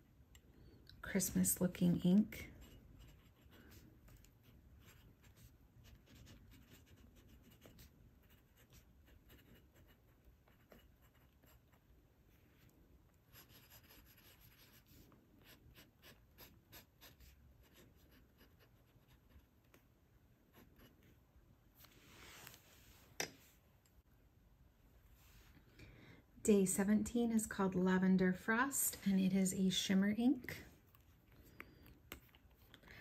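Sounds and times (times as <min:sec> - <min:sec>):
pen nib scratching paper: 0:02.5 - 0:11.8, 0:13.3 - 0:19.8.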